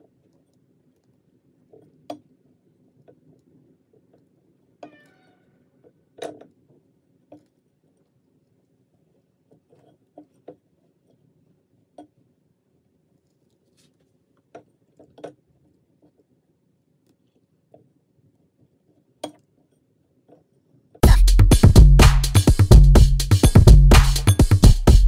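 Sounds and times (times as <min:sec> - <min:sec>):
short squeak-like tone: 0:04.8 - 0:05.6.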